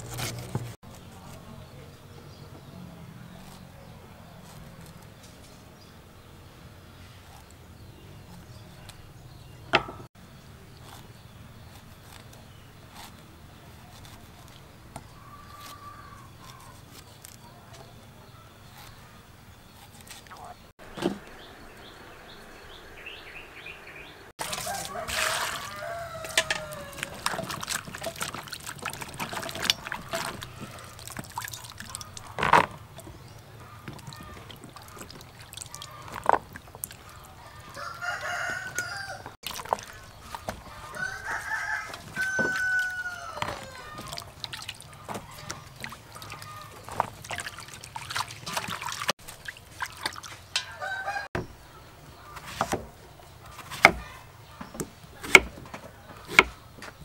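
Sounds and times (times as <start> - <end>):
vegetables being handled: 10.6 - 21.2, 24.4 - 50.6
rooster crowing: 23.9 - 27.3, 37.4 - 39.4, 40.8 - 44.2, 50.6 - 51.4.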